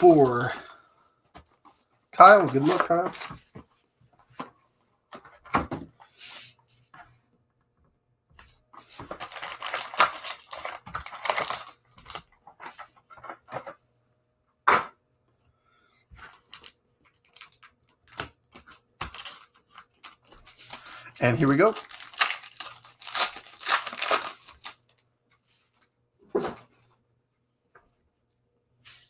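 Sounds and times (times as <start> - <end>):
foil packs rustling: 1.4 - 3.6, 8.8 - 12.3, 16.2 - 25.0
plastic wrap tearing and crinkling: 1.5 - 3.4, 8.9 - 12.3, 16.2 - 25.0.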